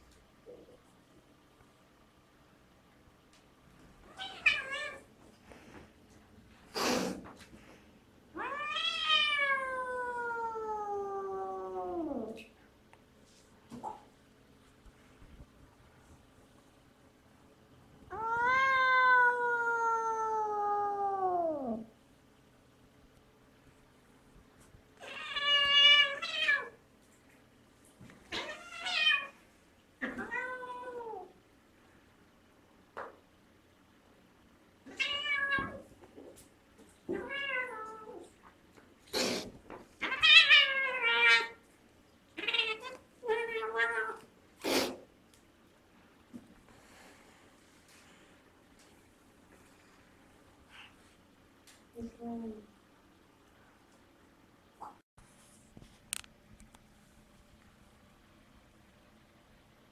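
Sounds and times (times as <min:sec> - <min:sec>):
cat hissing: 0:06.7 - 0:07.3, 0:39.1 - 0:41.6, 0:44.6 - 0:45.1
cat meowing: 0:08.4 - 0:12.3
cat yowling: 0:18.1 - 0:21.8.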